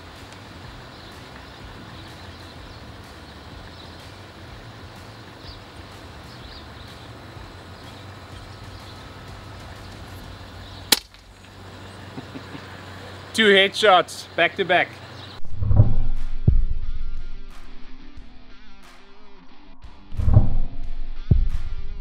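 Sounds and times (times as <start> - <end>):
low background hum: 0.0 - 15.4
air rifle shot: 10.9 - 11.2.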